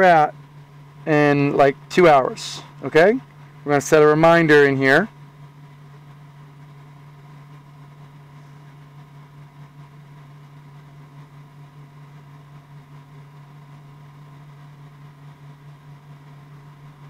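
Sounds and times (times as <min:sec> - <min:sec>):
air conditioner running: 0:00.0 - 0:17.0
cooling fans running: 0:00.0 - 0:17.0.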